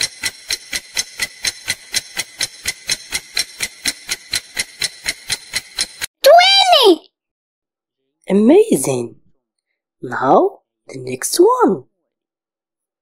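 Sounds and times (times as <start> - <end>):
clock ticking: 0.0 - 6.1.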